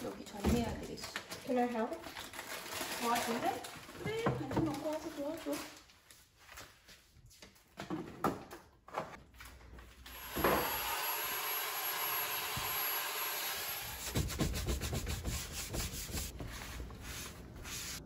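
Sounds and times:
handheld vacuum whining: 0:10.0 - 0:14.3
sponge scrubbing shelf: 0:13.8 - 0:18.0.

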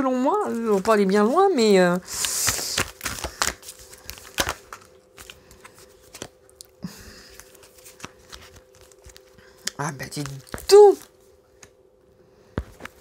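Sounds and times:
faint steady hum: 0:00.0 - 0:13.0
cards clicking and rustling: 0:02.1 - 0:06.4, 0:07.3 - 0:11.8.

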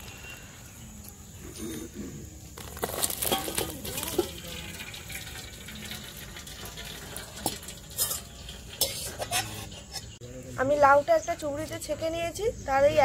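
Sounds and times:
pot and colander clicks and knocks: 0:02.8 - 0:10.1
water draining and dripping: 0:03.2 - 0:09.7.

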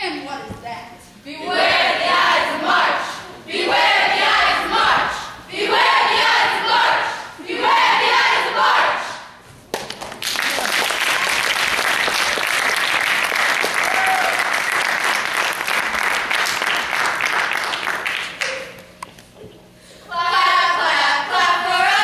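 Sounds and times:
group of voices singing: 0:01.3 - 0:09.3, 0:20.1 - 0:22.0
audience applauding: 0:09.8 - 0:18.8.

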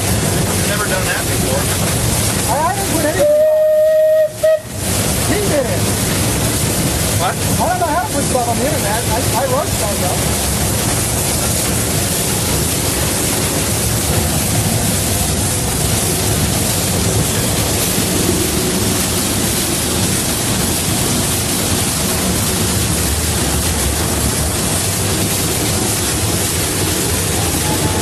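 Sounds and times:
low rumble: 0:00.0 - 0:28.0
steam locomotive hissing roar: 0:00.0 - 0:28.0.

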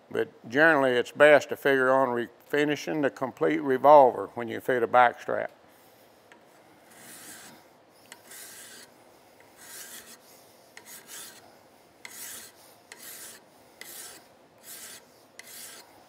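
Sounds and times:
hand file scraping metal: 0:06.2 - 0:16.0.

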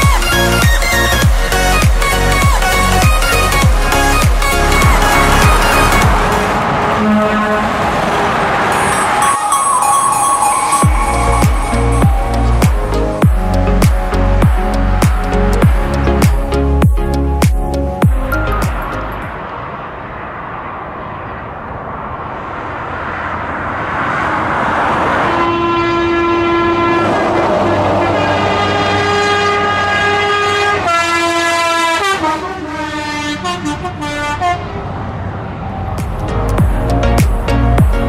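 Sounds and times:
truck engine and tyres: 0:00.0 - 0:38.0
truck air horn chord: 0:04.7 - 0:14.8, 0:25.2 - 0:34.7.

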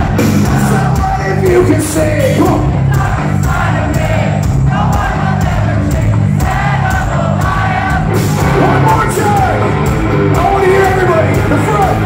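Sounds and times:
audience singing along: 0:00.0 - 0:01.4, 0:02.4 - 0:10.3
drums beating: 0:00.0 - 0:12.0
electric guitars and bass: 0:00.0 - 0:12.0.

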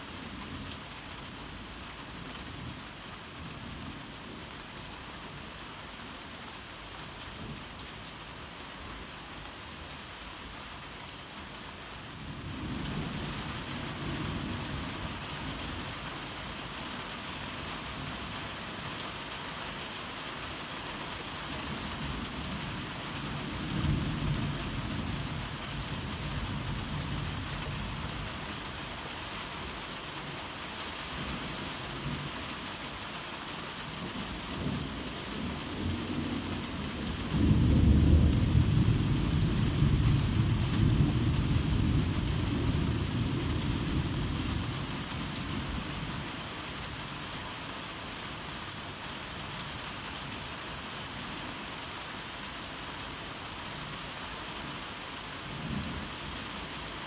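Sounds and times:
heavy rain falling: 0:00.0 - 0:57.0
thunder rumbling and cracking: 0:37.0 - 0:44.3.

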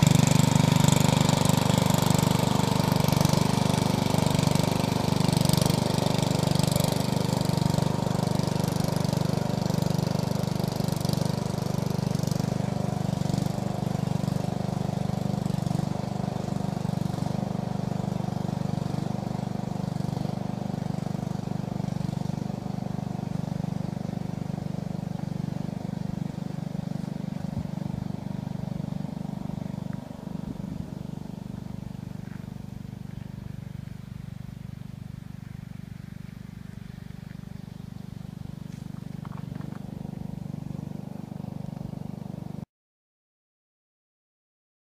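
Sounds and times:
lawn tractor engine running: 0:00.0 - 0:42.6.

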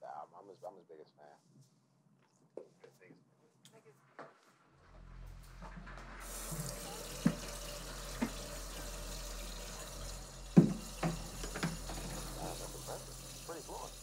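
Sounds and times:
tap running into sink: 0:06.2 - 0:14.0.

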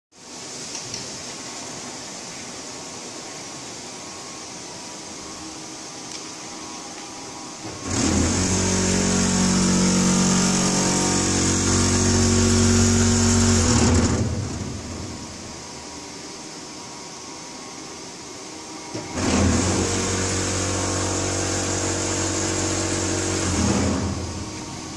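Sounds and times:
electric motor humming: 0:07.6 - 0:16.0, 0:18.7 - 0:24.9.

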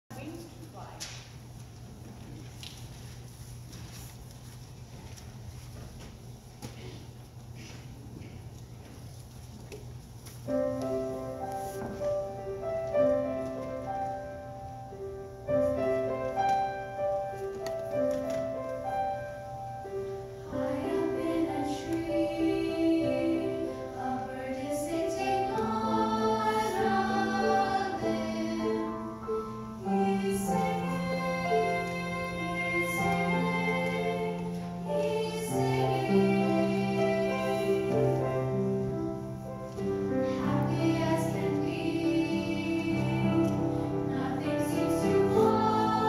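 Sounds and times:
piano accompaniment: 0:10.4 - 0:46.0
children's choir singing: 0:20.4 - 0:38.6, 0:40.0 - 0:46.0.

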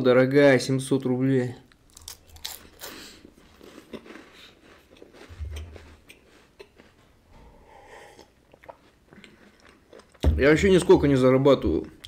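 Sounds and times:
chewing with mouth closed: 0:02.0 - 0:10.3
sipping and swallowing: 0:03.8 - 0:10.3
breaths through the nose: 0:07.3 - 0:08.4.

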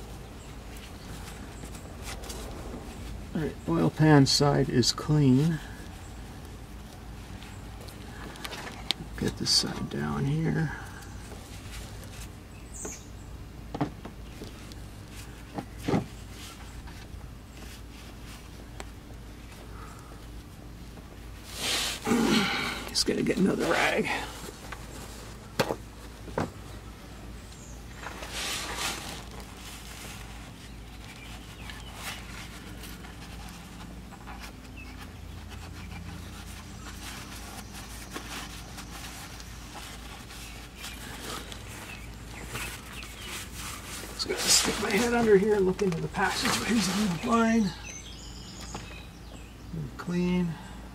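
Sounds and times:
steady low hum: 0:00.0 - 0:50.9
rag rubbing: 0:28.0 - 0:47.6.

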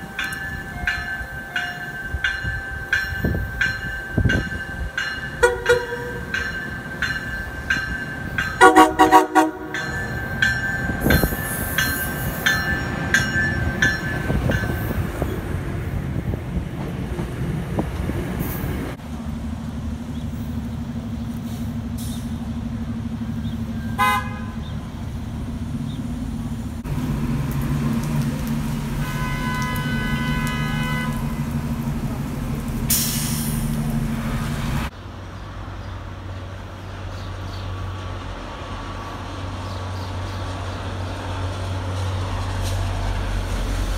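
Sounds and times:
buses idling: 0:00.0 - 0:43.9
bus horn toot: 0:05.4 - 0:06.2, 0:08.6 - 0:09.8, 0:23.9 - 0:24.7, 0:29.0 - 0:31.4
pulsing bus horn: 0:05.4 - 0:06.3, 0:08.6 - 0:09.8, 0:23.8 - 0:24.7, 0:29.0 - 0:31.6
train horn blasts: 0:05.4 - 0:06.3, 0:08.6 - 0:10.0, 0:23.8 - 0:24.7, 0:29.0 - 0:31.6.

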